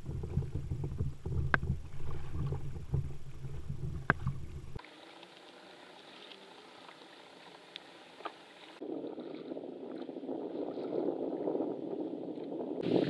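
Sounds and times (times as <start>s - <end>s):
water sloshing against kayak hull: 0.0s - 13.0s
hiss of open water: 4.8s - 8.8s.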